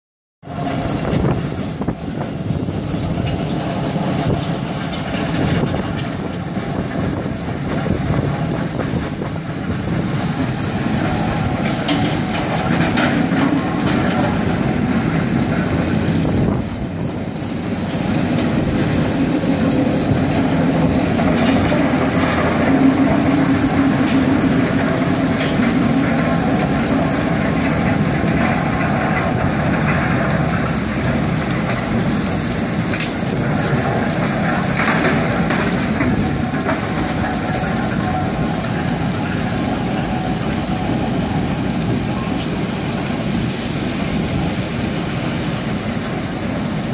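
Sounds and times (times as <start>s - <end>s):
crusher machine running: 0.4s - 46.9s.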